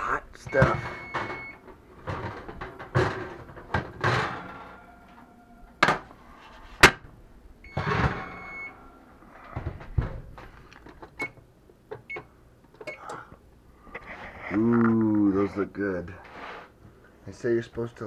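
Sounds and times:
oven door shutting: 0.5 - 5.0, 7.7 - 8.7.

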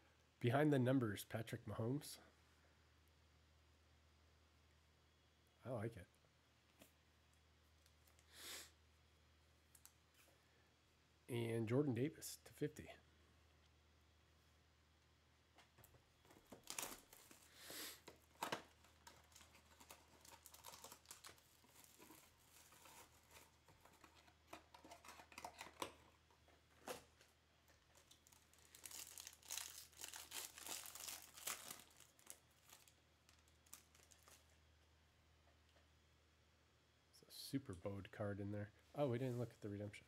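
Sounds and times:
wrapper crinkling: 16.2 - 34.6
foil pack tearing: 16.5 - 26.0, 27.9 - 34.5.

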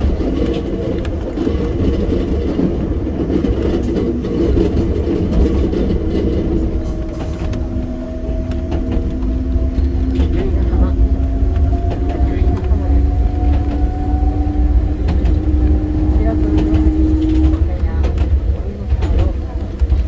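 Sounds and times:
train rumble from inside: 0.0 - 20.0
steady tone: 4.4 - 17.8.

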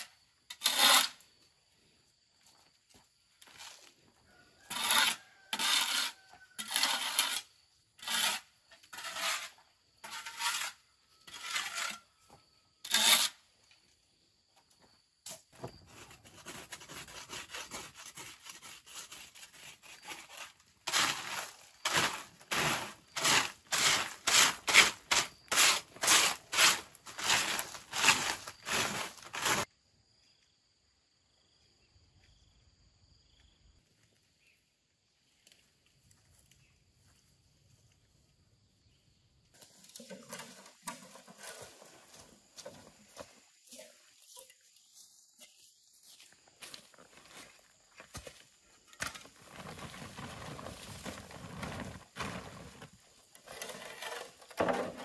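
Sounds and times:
hand tool scraping: 0.0 - 1.2, 4.6 - 13.4, 15.3 - 29.7, 39.6 - 55.0.

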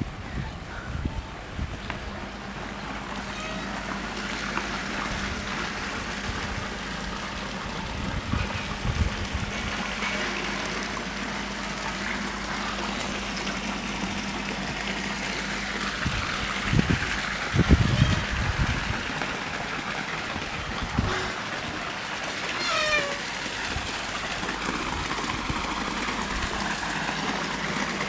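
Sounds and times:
water pouring into a pool: 1.3 - 28.0
wind gusts on microphone: 16.0 - 19.1.

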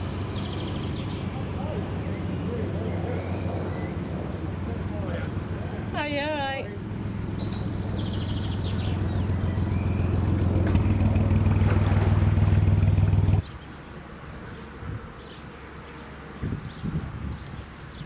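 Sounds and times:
boat engine humming: 0.0 - 13.5
open-air background: 0.0 - 18.0.

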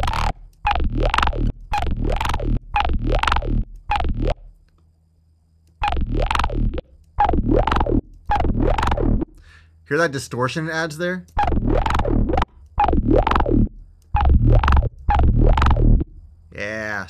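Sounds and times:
distorted bass synth loop: 0.0 - 4.5, 5.8 - 9.4, 11.3 - 16.3.

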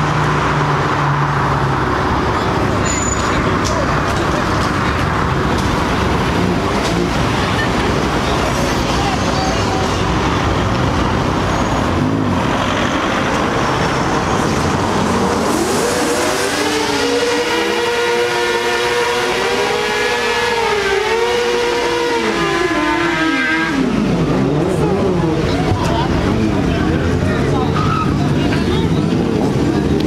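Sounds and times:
car engine revving in burnout: 10.0 - 28.4.

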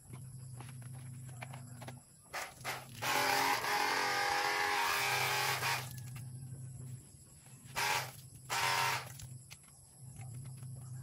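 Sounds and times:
pressure washer pump whining: 2.4 - 6.0, 7.7 - 9.2.

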